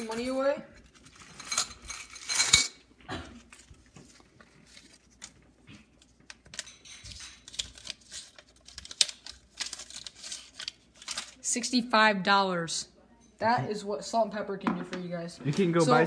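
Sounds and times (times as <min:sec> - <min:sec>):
coins clattering in a bowl: 0:00.0 - 0:02.8, 0:06.6 - 0:08.3
banknotes crinkling and rustling: 0:03.4 - 0:11.5.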